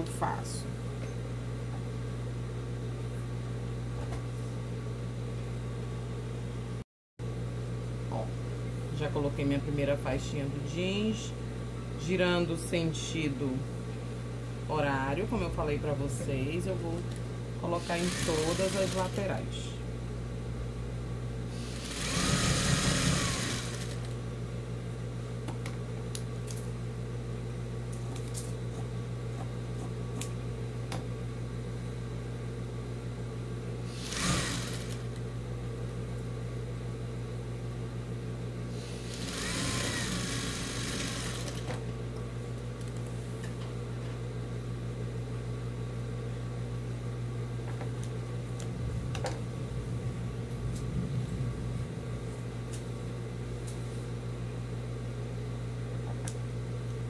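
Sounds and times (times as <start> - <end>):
sewing machine running: 17.8 - 19.2, 21.6 - 24.2, 34.0 - 35.2, 39.0 - 41.7.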